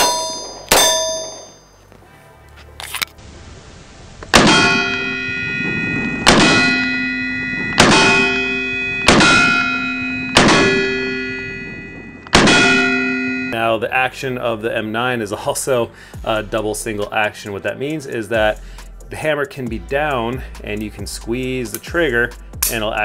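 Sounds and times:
pistol shots: 0:00.0 - 0:01.5, 0:04.3 - 0:05.1, 0:06.2 - 0:07.0, 0:07.7 - 0:11.2, 0:12.3 - 0:13.1
steel target ringing: 0:00.0 - 0:01.8, 0:04.3 - 0:13.8.

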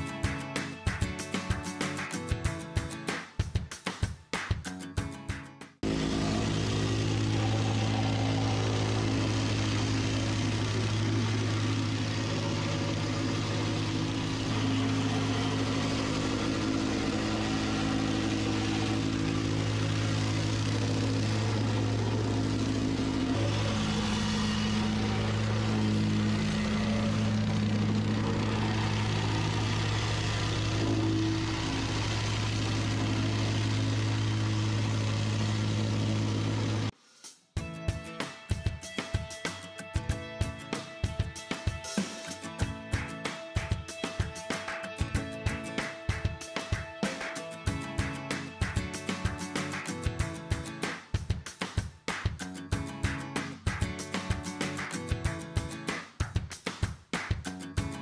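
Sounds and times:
plate compactor droning: 0:05.8 - 0:36.9, 0:41.2 - 0:50.8.

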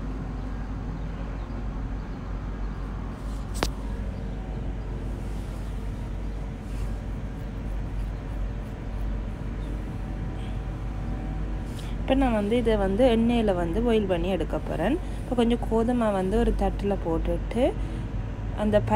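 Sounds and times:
steady low hum: 0:01.7 - 0:18.9
sharp click: 0:03.5 - 0:03.9.

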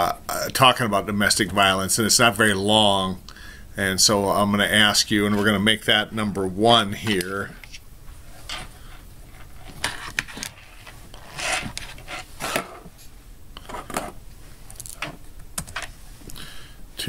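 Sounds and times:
mouse rubbing on desk: 0:09.3 - 0:12.9.

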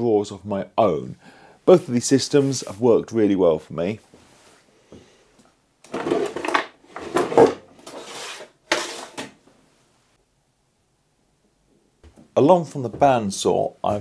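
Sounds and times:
steel drawers sliding and knocking: 0:05.9 - 0:09.4.

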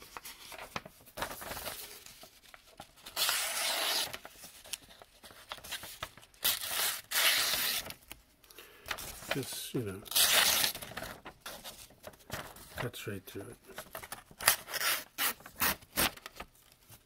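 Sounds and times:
paper rustling and crinkling: 0:00.0 - 0:08.2, 0:08.8 - 0:17.0.

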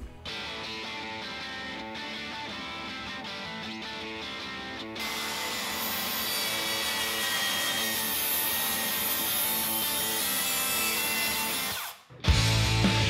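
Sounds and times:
saw cutting through wood: 0:05.0 - 0:12.0.

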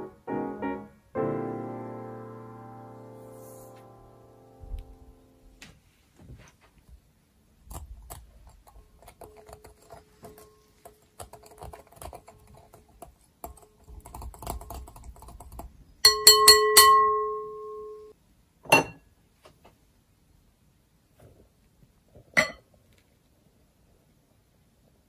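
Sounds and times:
metal striking ringing glass bowl: 0:16.0 - 0:18.1.

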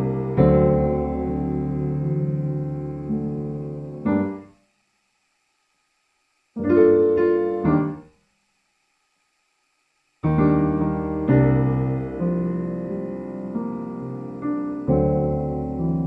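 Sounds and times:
background piano music: 0:00.0 - 0:04.5, 0:10.3 - 0:16.0.

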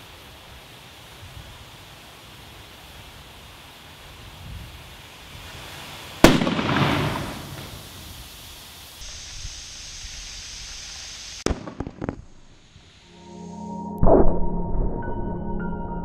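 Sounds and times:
ball bursting with loud bang: 0:06.2 - 0:07.8.

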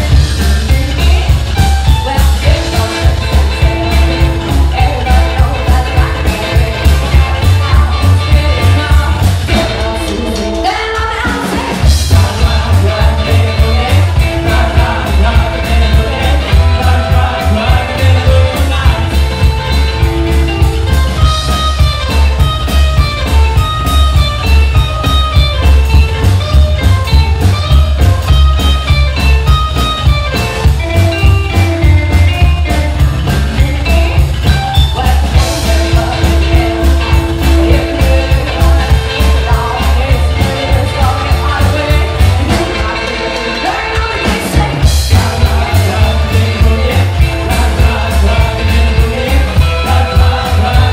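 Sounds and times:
woman singing: 0:00.0 - 0:19.6, 0:34.7 - 0:50.9
drums on a driving beat: 0:00.0 - 0:50.9
electric guitar: 0:00.0 - 0:50.9
upright double bass: 0:00.0 - 0:50.9.

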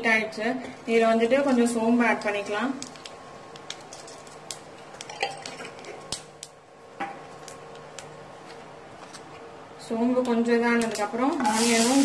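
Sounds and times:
seeds popping in hot oil: 0:01.6 - 0:08.7, 0:10.2 - 0:12.0.

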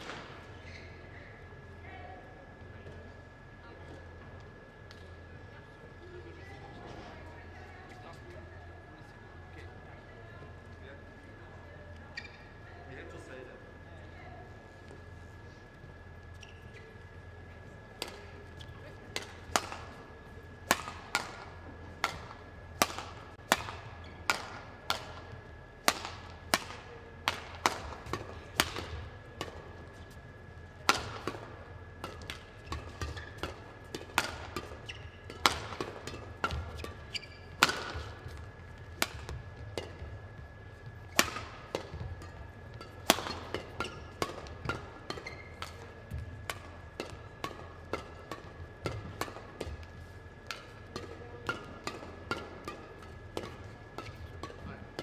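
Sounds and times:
racquets hitting shuttlecock: 0:00.0 - 0:00.8, 0:17.9 - 0:55.0
faint hall hum: 0:00.0 - 0:55.0.

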